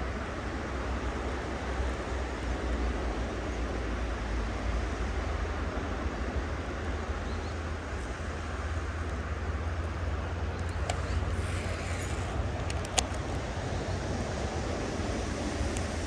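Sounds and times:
sharp clicks: 0:10.5 - 0:13.4.

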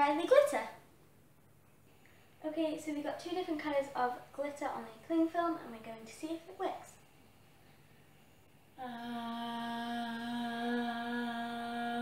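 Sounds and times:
girl humming a steady note: 0:08.7 - 0:12.0.

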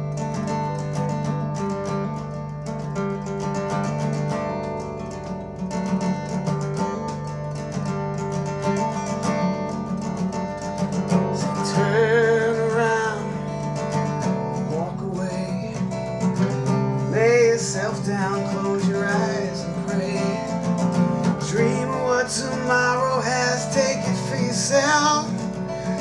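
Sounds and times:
acoustic guitar strumming: 0:00.0 - 0:26.0
person singing wordlessly: 0:11.3 - 0:26.0.

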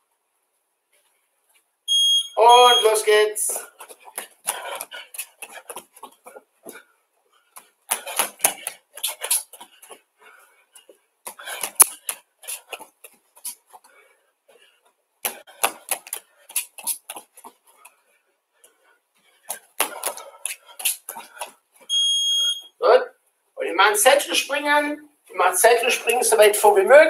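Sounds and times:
bare feet slapping on mats: 0:03.5 - 0:06.8, 0:07.5 - 0:10.1, 0:10.7 - 0:13.9, 0:15.2 - 0:18.0, 0:19.2 - 0:21.9.

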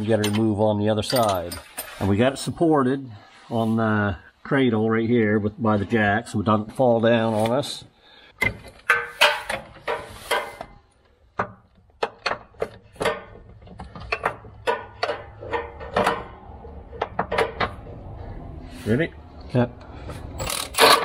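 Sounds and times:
hand ratchet clicking: 0:20.4 - 0:21.0.

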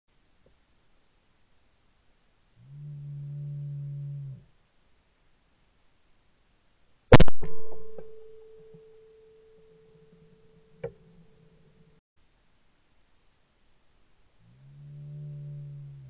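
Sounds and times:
faint steady tone: 0:00.1 - 0:16.0
shotgun shot: 0:07.1 - 0:08.5.

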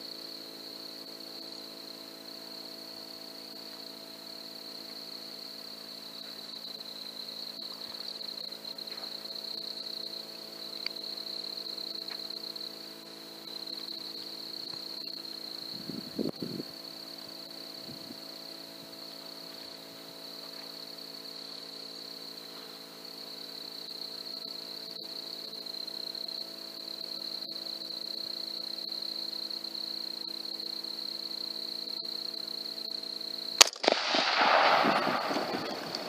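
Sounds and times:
rifle shot: 0:33.6 - 0:36.0.

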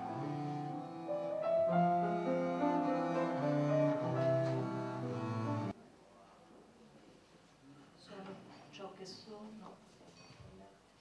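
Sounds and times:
slow instrumental music: 0:00.0 - 0:05.7.

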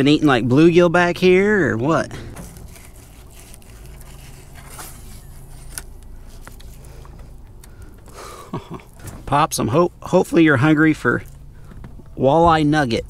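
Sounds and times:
low steady rumble: 0:00.0 - 0:13.0
knife scraping fish: 0:02.3 - 0:05.8.

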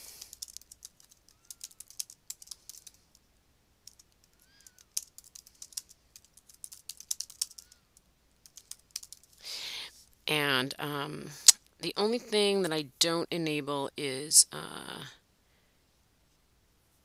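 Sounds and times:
typing on computer keyboard: 0:00.1 - 0:03.2, 0:03.8 - 0:07.8, 0:08.4 - 0:09.4.

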